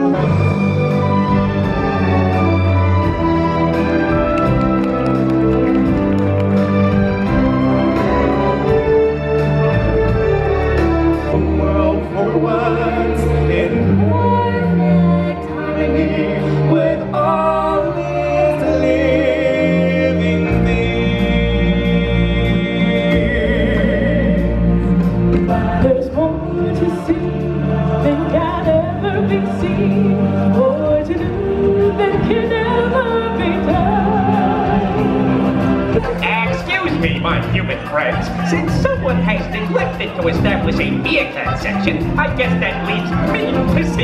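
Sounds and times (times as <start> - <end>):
instrumental accompaniment with bass: 0.0 - 44.0
people singing into microphones: 11.3 - 36.6.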